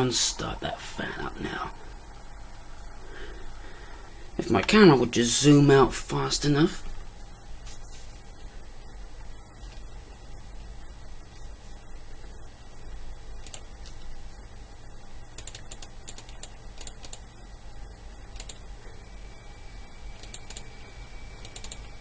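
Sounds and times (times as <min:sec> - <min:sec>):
computer hum: 0:00.0 - 0:22.0
faint high whine: 0:00.0 - 0:22.0
keyboard typing: 0:15.4 - 0:17.2, 0:18.4 - 0:18.6, 0:20.2 - 0:20.7, 0:21.4 - 0:21.9.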